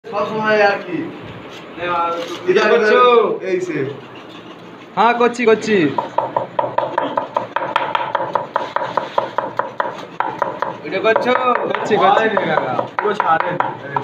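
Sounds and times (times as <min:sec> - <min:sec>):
knife chopping on wooden board: 0:06.0 - 0:14.0.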